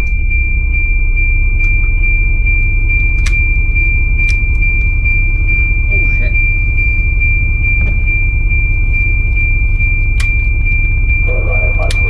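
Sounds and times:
bus diesel engine idling: 0.0s - 12.0s
high-pitched electronic tone: 0.0s - 12.0s
sharp clicks: 3.0s - 5.5s, 9.9s - 10.6s, 11.8s - 12.0s.

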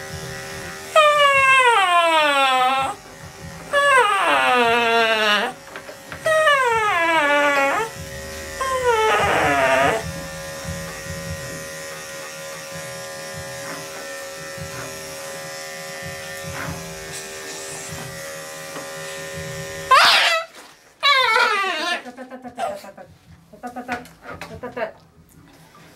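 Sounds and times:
electric clippers humming: 0.0s - 20.6s
dog crying: 1.0s - 3.0s, 3.7s - 5.6s, 6.3s - 7.9s, 8.6s - 10.0s, 19.9s - 23.0s
dog whining: 1.0s - 3.0s, 3.7s - 5.6s, 6.2s - 7.9s, 8.6s - 10.0s, 19.9s - 23.0s.

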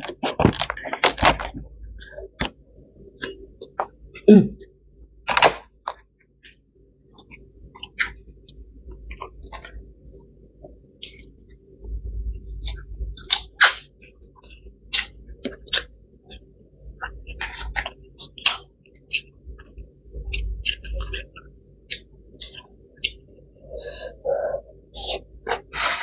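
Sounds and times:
person chewing food: 0.0s - 4.3s, 7.2s - 26.0s.

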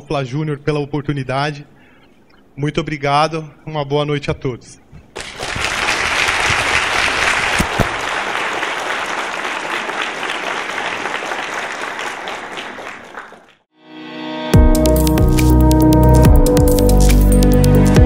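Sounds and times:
audience applauding: 5.2s - 13.6s
music: 13.8s - 18.0s.

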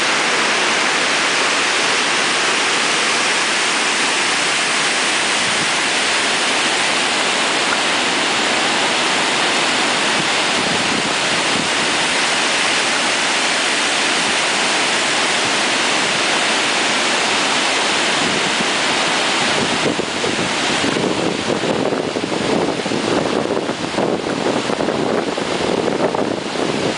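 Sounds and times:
water rushing over spillway: 0.0s - 26.9s
wind buffeting microphone: 3.6s - 7.9s, 8.8s - 12.4s, 19.4s - 26.9s.

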